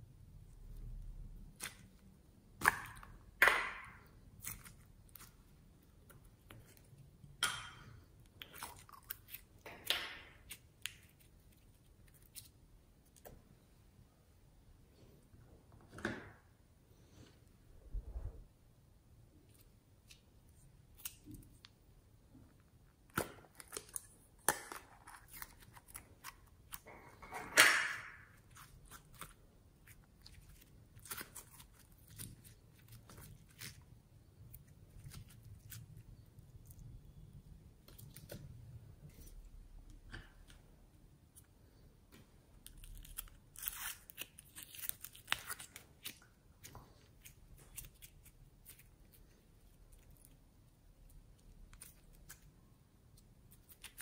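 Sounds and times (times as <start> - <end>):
slime tearing crackly: 42.7 - 46.2.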